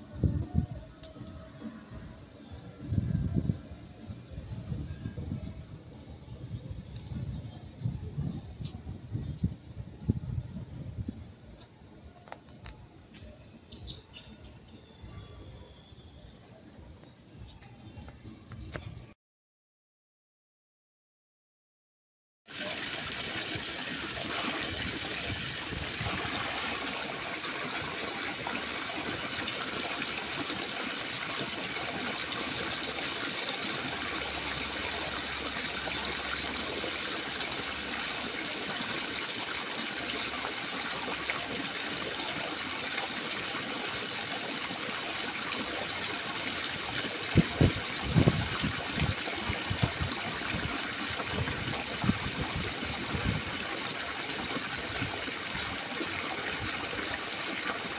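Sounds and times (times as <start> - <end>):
running water rushing: 22.5 - 57.9.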